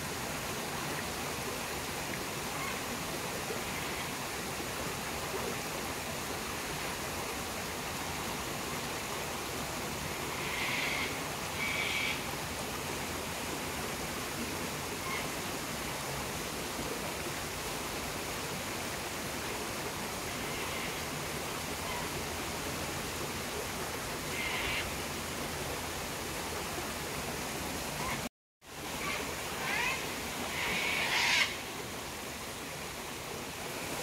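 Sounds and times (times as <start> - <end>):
distant cockatoo screeches: 29.0 - 31.5.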